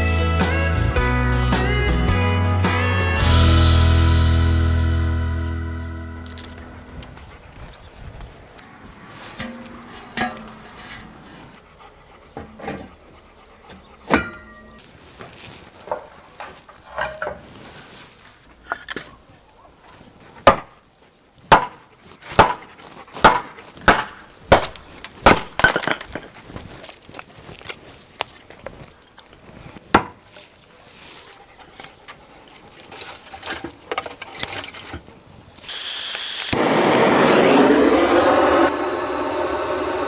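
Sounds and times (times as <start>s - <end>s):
hatchet chopping wood: 20.4s - 20.7s, 21.5s - 25.9s, 29.9s - 30.2s.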